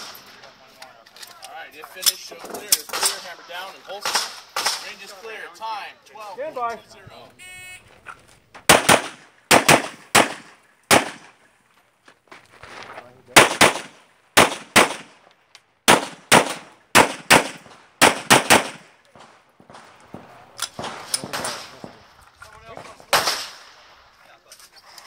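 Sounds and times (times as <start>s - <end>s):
pistol shots in quick pairs: 8.7s - 11.4s, 13.3s - 15.2s, 15.8s - 22.0s, 23.0s - 23.8s.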